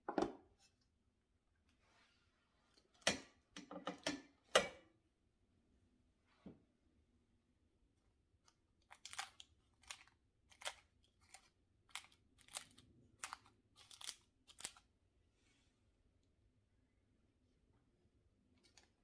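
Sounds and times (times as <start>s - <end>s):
flaky pastry crunching: 8.4s - 14.9s.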